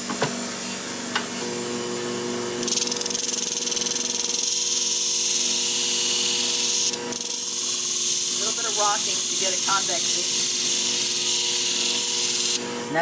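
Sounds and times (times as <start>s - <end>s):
motor humming: 1.1s - 13.0s
blade grinding hiss: 2.6s - 12.6s.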